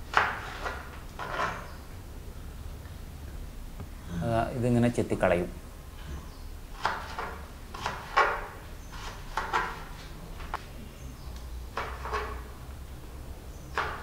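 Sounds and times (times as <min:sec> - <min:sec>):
knife chopping on plastic board: 0:06.8 - 0:09.9, 0:13.7 - 0:14.0.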